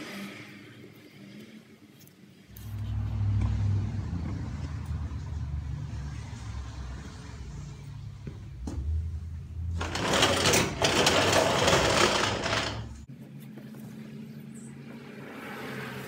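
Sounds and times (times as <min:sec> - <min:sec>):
low motor rumble: 0:02.6 - 0:13.1.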